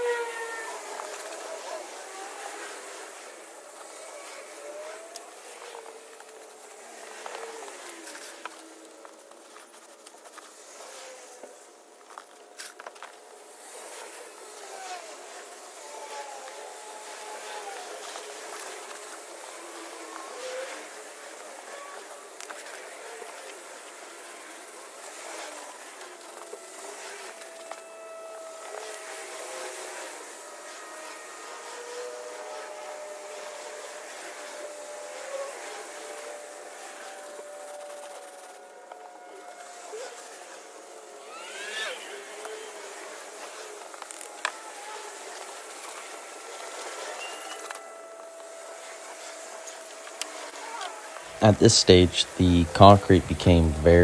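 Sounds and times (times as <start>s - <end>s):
motor droning: 12.4s - 54.0s.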